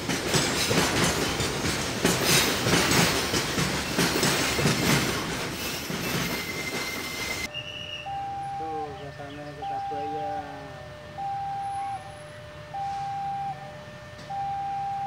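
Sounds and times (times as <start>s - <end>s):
train wheels clattering over rail joints: 0.0s - 7.5s.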